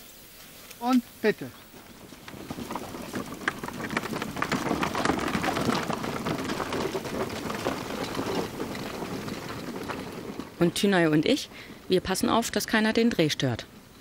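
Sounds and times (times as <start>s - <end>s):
wheels crunching on dirt path: 0.0s - 14.0s
footsteps on dirt path: 1.4s - 12.2s.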